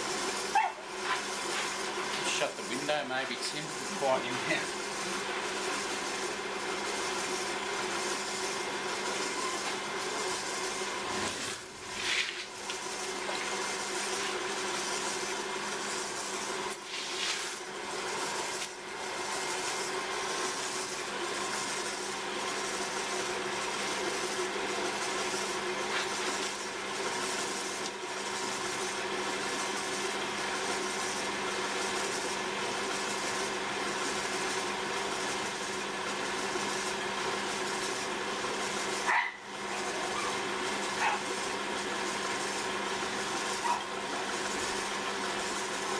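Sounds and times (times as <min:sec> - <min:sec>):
potter's wheel motor hum: 0:00.0 - 0:45.9.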